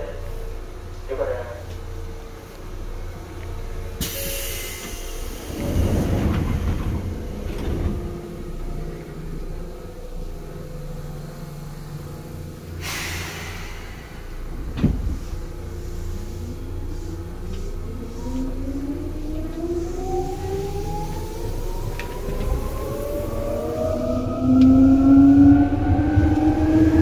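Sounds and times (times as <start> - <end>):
train running rumble: 0.0 - 27.0
air hiss: 12.8 - 14.5.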